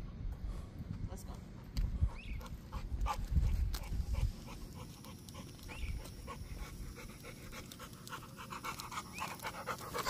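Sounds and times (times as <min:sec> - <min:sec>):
dog panting: 0:02.1 - 0:10.0.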